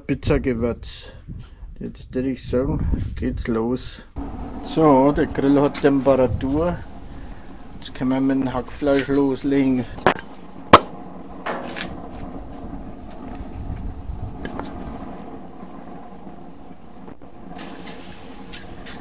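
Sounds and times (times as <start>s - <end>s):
aerosol spray hissing: 4.2s - 11.2s, 11.9s - 19.0s
sharp clack: 10.0s - 11.9s.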